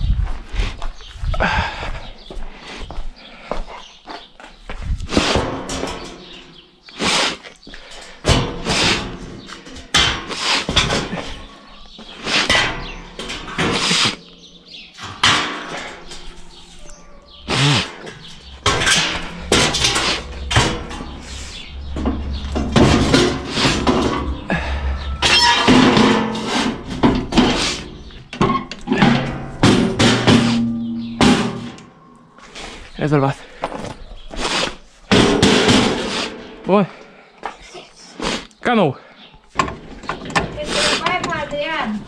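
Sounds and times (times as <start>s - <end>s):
steel plate clanking and scraping: 5.2s - 6.6s, 7.9s - 32.0s, 35.1s - 36.6s.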